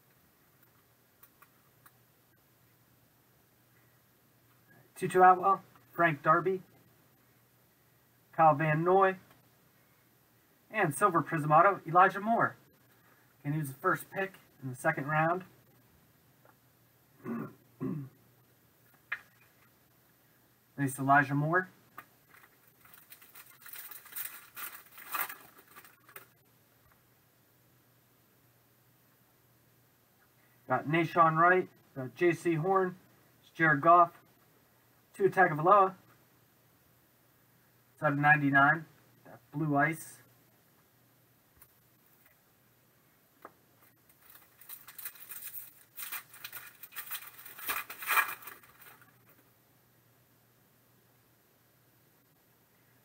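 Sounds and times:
foil wrapper crinkling: 22.2 - 26.4, 44.0 - 49.3.

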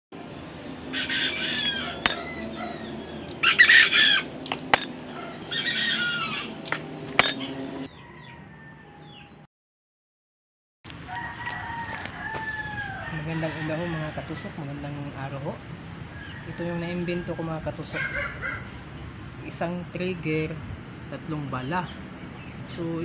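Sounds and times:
rooster crowing: 0.9 - 4.2, 7.9 - 9.4, 11.1 - 14.0.

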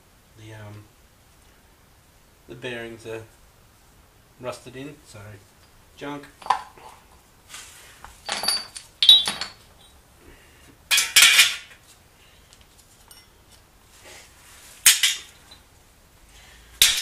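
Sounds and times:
metal engine parts clinking: 8.2 - 10.0, 13.0 - 13.4.

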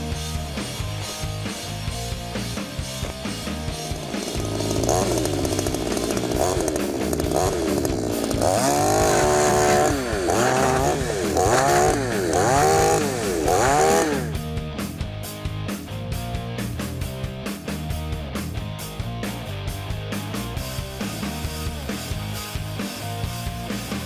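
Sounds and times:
chainsaw revving: 0.0 - 14.6.

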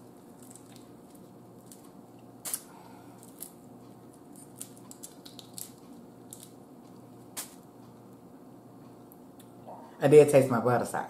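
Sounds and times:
faint steady hum: 0.0 - 11.0
shrimp shells crackling: 0.2 - 3.6, 4.2 - 6.6.

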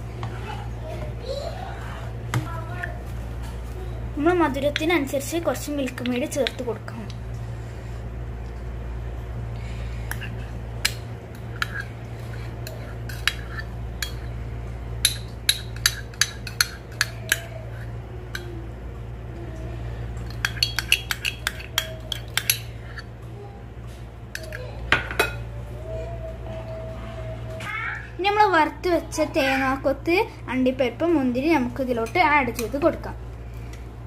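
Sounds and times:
steady low hum: 0.0 - 34.0
metal spoons clinking on pan: 20.3 - 22.7.

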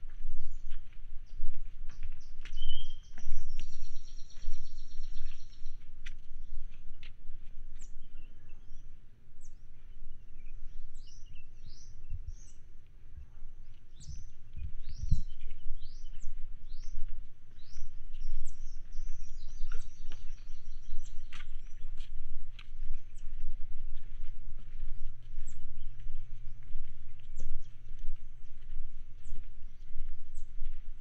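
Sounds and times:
footsteps on wooden boardwalk: 0.0 - 8.9, 9.8 - 31.0
small birds chirping: 0.0 - 31.0
steady low rumble: 0.0 - 31.0.

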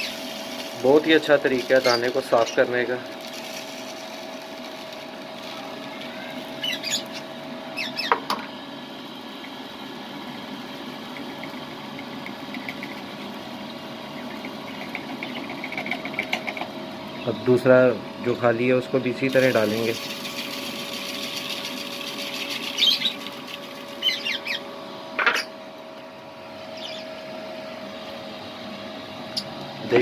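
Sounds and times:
seed pouring: 0.0 - 6.5, 19.3 - 24.0
electric fan humming: 0.0 - 30.0.

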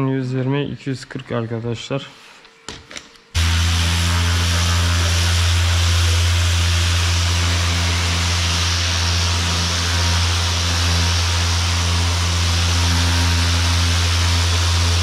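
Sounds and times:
power sander running: 3.4 - 15.0.

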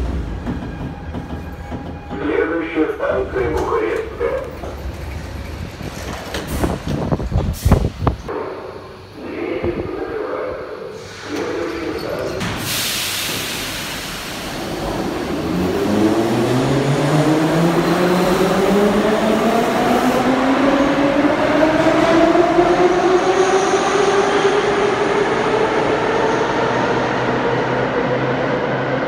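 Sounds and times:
train wheels rumbling on rails: 0.0 - 9.1.

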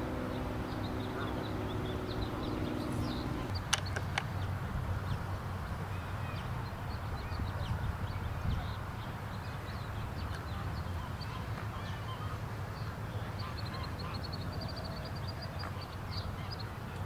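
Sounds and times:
low rumble: 0.0 - 3.5
bird chirps: 0.0 - 4.0.

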